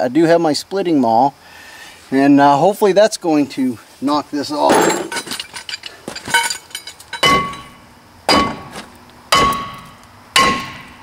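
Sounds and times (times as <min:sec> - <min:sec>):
maul striking metal rotor: 0:04.7 - 0:11.0.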